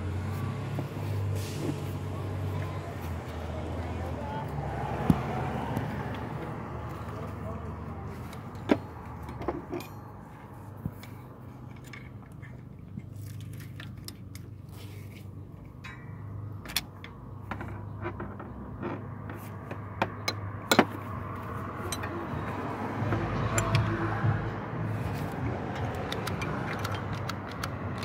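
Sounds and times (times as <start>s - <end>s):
metallic clicks of hand tools: 23.4s - 23.9s, 25.7s - 28.0s.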